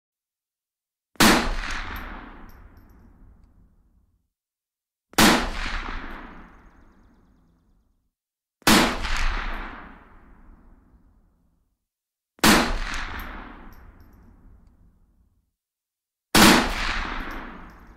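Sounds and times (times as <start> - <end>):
rifle shots with rolling echo: 1.2 - 3.4, 5.2 - 7.0, 8.7 - 10.7, 12.4 - 14.5, 16.4 - 17.9.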